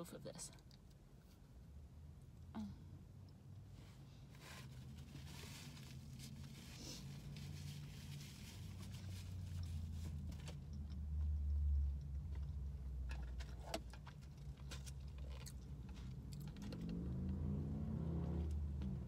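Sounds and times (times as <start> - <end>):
chewing with mouth clicks: 13.6 - 16.8.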